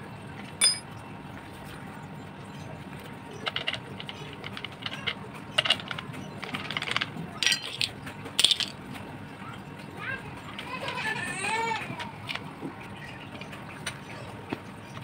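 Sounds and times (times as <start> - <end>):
small steel parts clinking: 0.6 - 0.9, 7.4 - 8.7.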